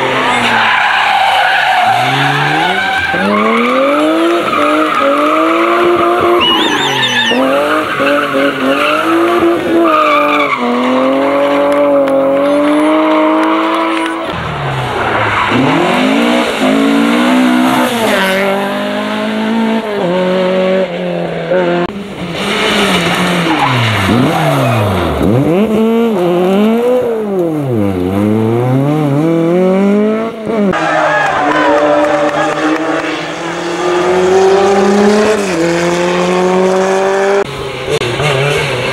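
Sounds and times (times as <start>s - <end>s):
rally car engines revving: 0.0s - 38.9s
tyres squealing: 0.2s - 11.6s.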